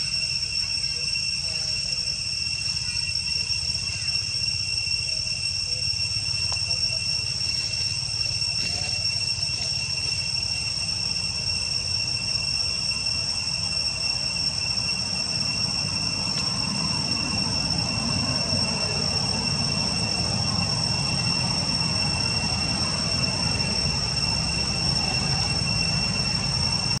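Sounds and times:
insects droning: 0.0s - 27.0s.

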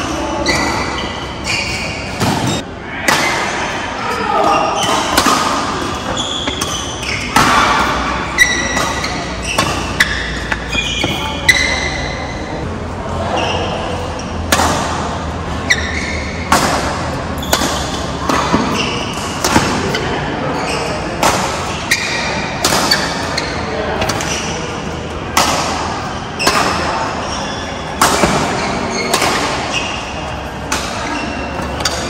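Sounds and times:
players' voices: 0.0s - 32.0s
shoes squeaking on floor: 0.2s - 2.6s, 4.4s - 12.6s, 13.3s - 14.4s, 15.5s - 16.5s, 17.3s - 19.1s, 20.0s - 24.6s, 26.3s - 32.0s
rackets striking shuttlecock: 4.8s - 12.2s, 14.4s - 20.1s, 21.2s - 24.6s, 25.3s - 27.1s, 28.0s - 32.0s.

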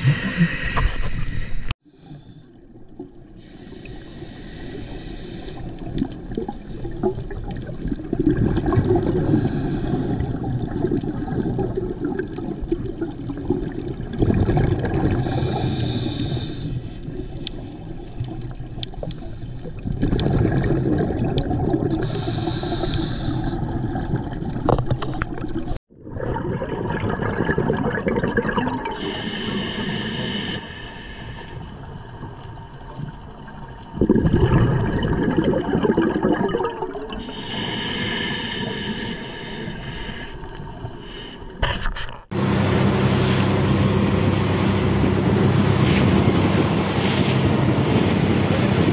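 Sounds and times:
diver breathing through regulator: 0.0s - 2.6s, 3.4s - 5.9s, 9.2s - 10.4s, 15.2s - 17.7s, 22.0s - 23.8s, 28.9s - 32.0s, 37.2s - 41.7s
exhaled bubbles rushing: 5.6s - 15.7s, 17.1s - 22.3s, 23.4s - 29.2s, 32.0s - 37.3s.

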